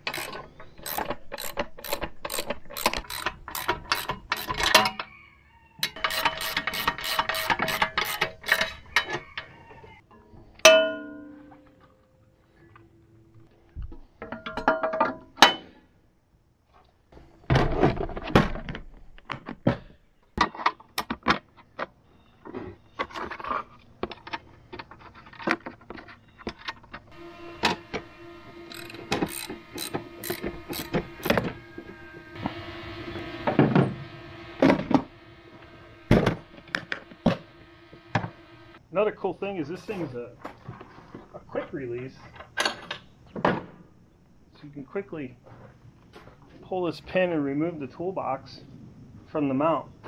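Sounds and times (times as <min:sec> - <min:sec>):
steady held tone: 0:27.1 - 0:38.8.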